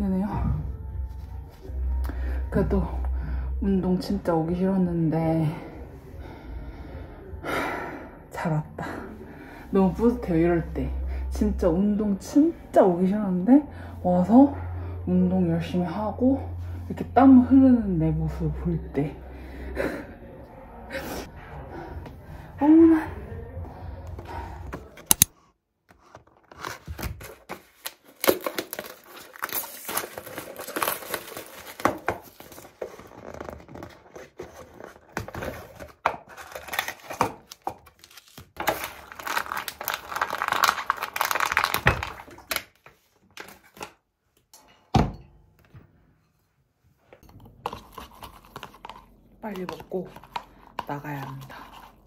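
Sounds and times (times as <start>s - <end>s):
packaging tearing and crinkling: 26.2s - 42.8s.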